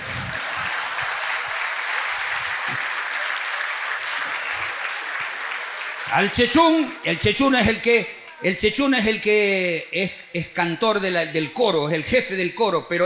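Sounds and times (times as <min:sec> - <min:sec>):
audience applauding: 0:00.0 - 0:07.0.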